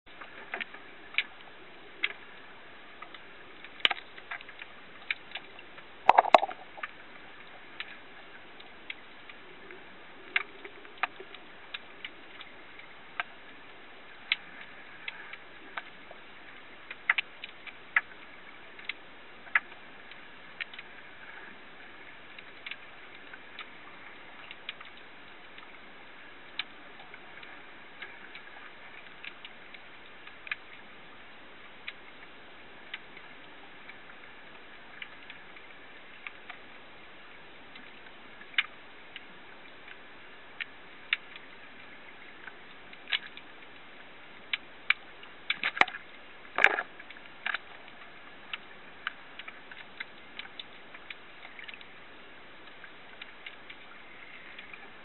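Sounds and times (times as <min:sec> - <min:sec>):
faint steady hiss: 0:00.1 - 0:55.0
underwater clicks and snaps: 0:00.2 - 0:08.0, 0:08.6 - 0:13.4, 0:14.2 - 0:25.8, 0:26.4 - 0:30.8, 0:37.7 - 0:40.0, 0:40.6 - 0:52.0, 0:52.6 - 0:55.0
underwater knocks: 0:06.1 - 0:06.8.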